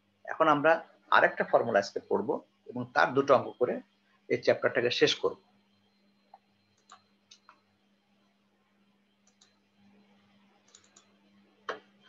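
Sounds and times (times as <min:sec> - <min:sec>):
faint steady hum: 0:00.0 - 0:12.0
computer mouse clicks: 0:06.3 - 0:07.6, 0:09.2 - 0:09.6, 0:10.6 - 0:11.9.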